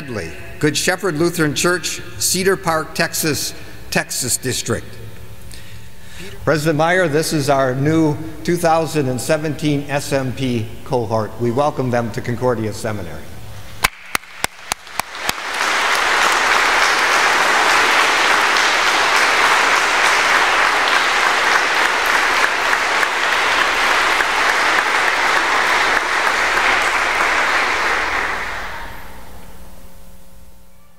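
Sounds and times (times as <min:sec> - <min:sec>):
crowd applauding: 0:13.8 - 0:29.3.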